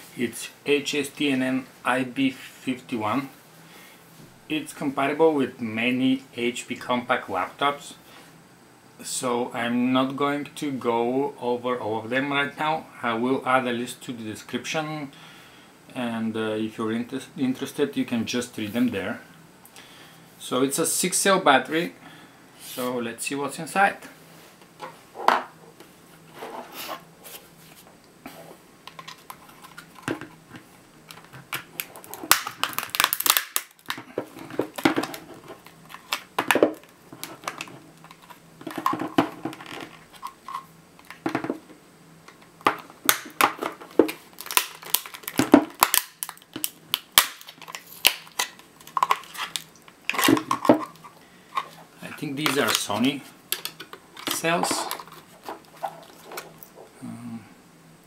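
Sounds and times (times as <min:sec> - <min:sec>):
plastic case cracking and snapping: 0:31.1 - 0:40.3, 0:42.4 - 0:51.0.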